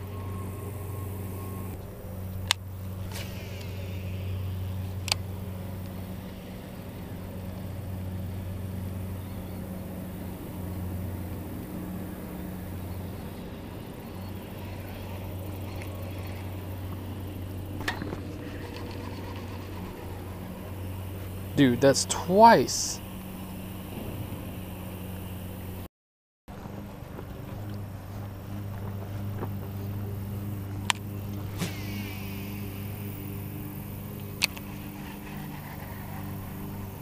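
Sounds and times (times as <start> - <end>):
construction machinery droning: 0.0 - 25.9, 26.5 - 37.0
sharp clicks: 30.8 - 33.4.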